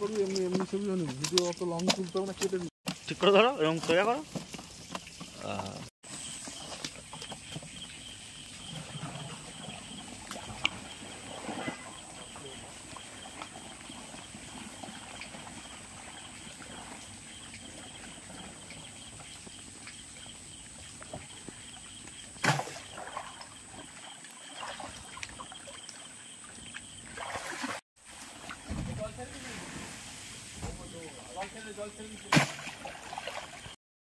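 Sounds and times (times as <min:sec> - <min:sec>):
water sloshing and splashing: 0:00.0 - 0:33.8
loud sharp splash: 0:22.4 - 0:23.3, 0:32.2 - 0:33.6.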